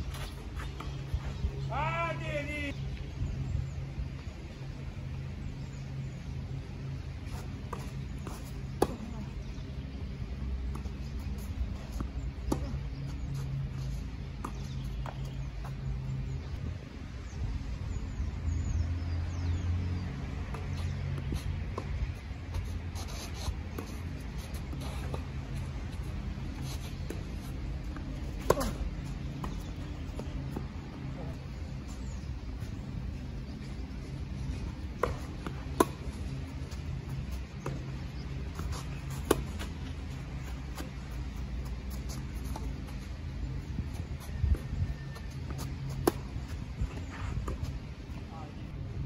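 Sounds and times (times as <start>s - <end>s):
low outdoor rumble: 0.0s - 49.0s
racket striking ball: 28.4s - 28.8s
tennis ball struck and bouncing: 28.4s - 30.7s.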